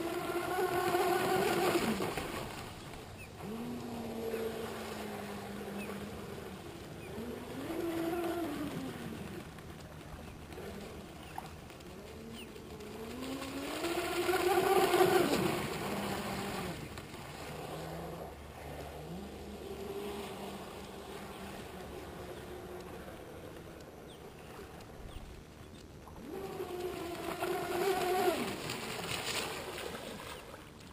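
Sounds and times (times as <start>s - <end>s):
rc speedboat motor whine: 0.0s - 2.1s, 12.1s - 24.9s, 26.2s - 28.6s.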